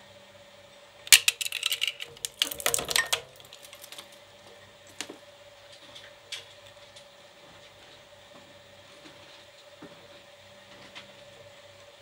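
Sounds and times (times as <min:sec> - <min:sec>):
shredder cracking toy car: 0:01.1 - 0:04.1.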